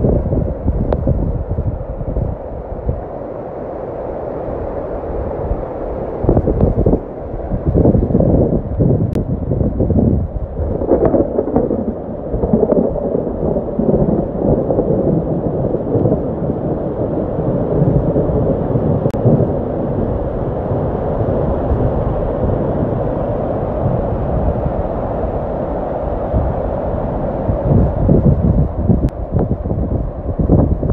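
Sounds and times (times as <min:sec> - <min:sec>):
water rushing over rocks: 0:10.5 - 0:19.7.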